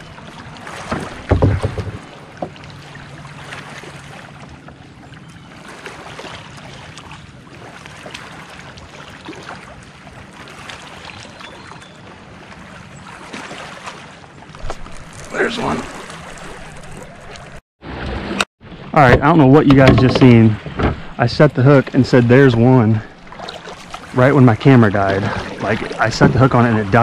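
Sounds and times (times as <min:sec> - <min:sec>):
waves lapping against plastic hull: 0:00.0 - 0:27.0
dull thumps: 0:00.9 - 0:02.6.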